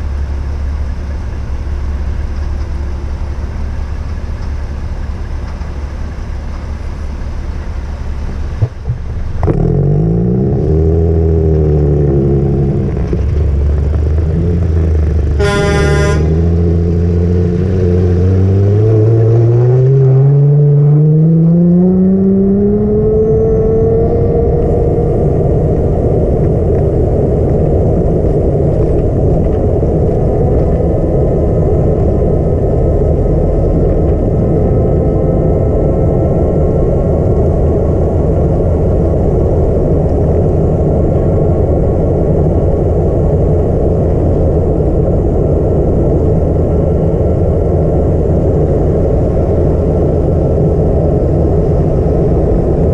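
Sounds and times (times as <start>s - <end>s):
road noise: 0.0s - 52.9s
vehicle engine accelerating: 0.0s - 52.9s
short horn toot: 15.4s - 16.6s.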